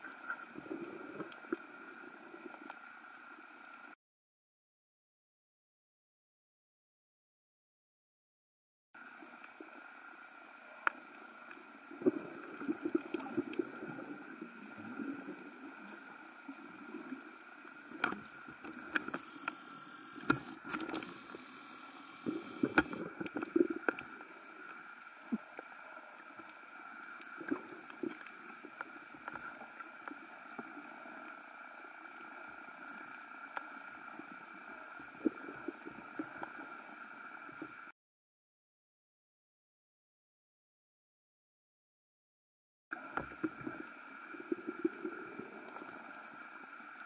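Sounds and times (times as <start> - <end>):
muffled underwater hum: 10.5 - 37.9.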